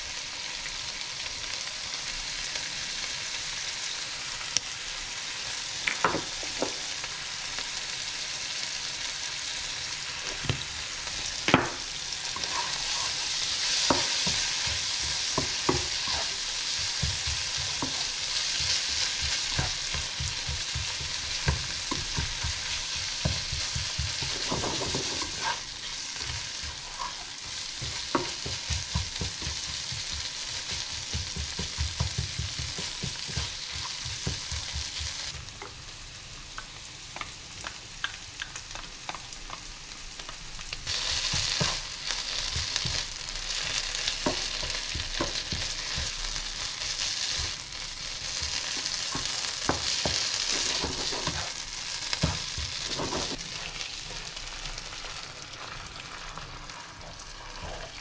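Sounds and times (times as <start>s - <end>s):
meat sizzling in a frying pan: 0.0s - 58.0s
spatula scraping pan: 12.2s - 35.3s, 48.2s - 54.2s, 57.0s - 58.0s.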